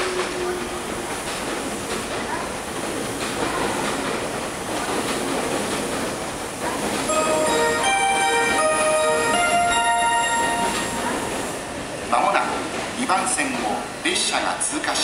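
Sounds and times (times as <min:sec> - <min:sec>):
electric train rumbling: 0:00.0 - 0:15.0
electronic chime melody: 0:07.1 - 0:11.6.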